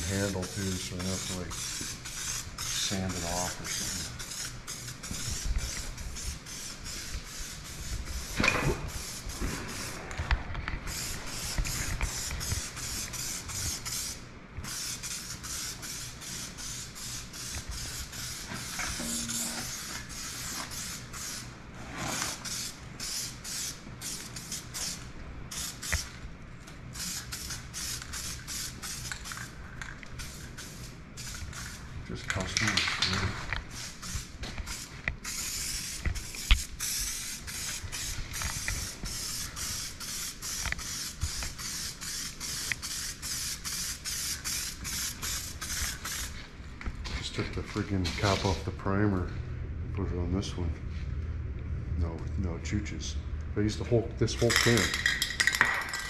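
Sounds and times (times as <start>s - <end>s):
spray paint can hissing: 0.0s - 10.0s, 10.8s - 21.5s, 22.2s - 26.2s, 26.9s - 46.4s, 54.4s - 56.0s
low steady hum: 18.8s - 20.1s.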